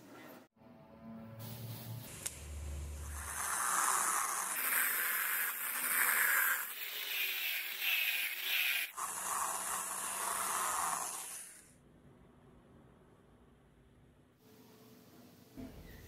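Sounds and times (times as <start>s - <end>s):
angle grinder sanding: 3.0s - 11.6s.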